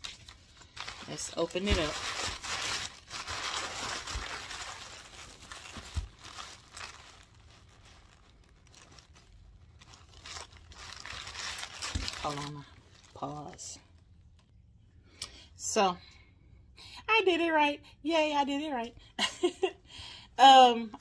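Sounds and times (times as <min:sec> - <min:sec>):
fabric pouch rustling: 0:00.0 - 0:13.4
tissue paper crinkling: 0:00.0 - 0:13.7.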